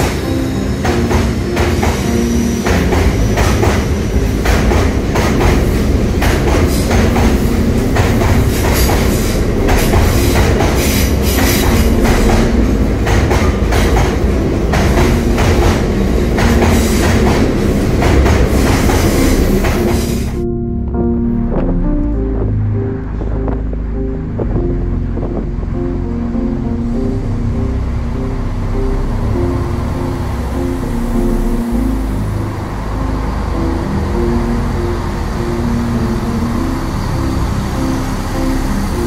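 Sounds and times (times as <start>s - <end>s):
wheels clacking over rail joints: 0.0s - 20.4s
freight train rumbling past: 0.0s - 39.0s.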